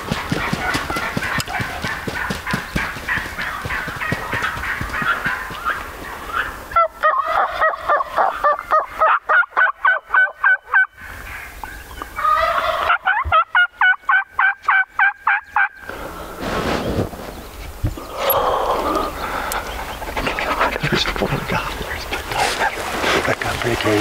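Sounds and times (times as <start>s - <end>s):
turkey yelping: 0.0s - 11.5s, 12.2s - 15.8s.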